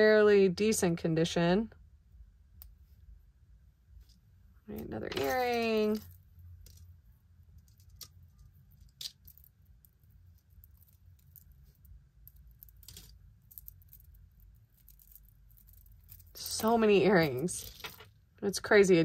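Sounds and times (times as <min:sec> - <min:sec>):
low steady hum: 0:00.0 - 0:19.0
metal earrings clinking: 0:04.7 - 0:06.9, 0:07.6 - 0:18.1.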